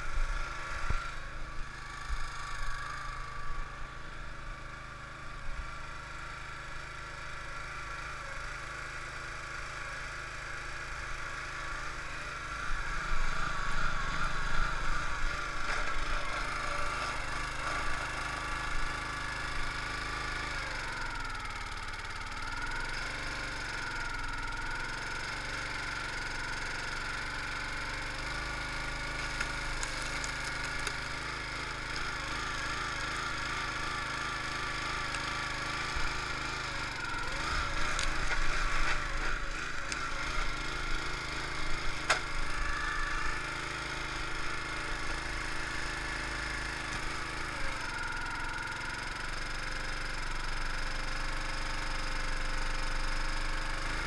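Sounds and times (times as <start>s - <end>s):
log splitter engine running: 0.0s - 54.0s
wood creaking and cracking: 29.0s - 32.1s, 37.4s - 41.1s.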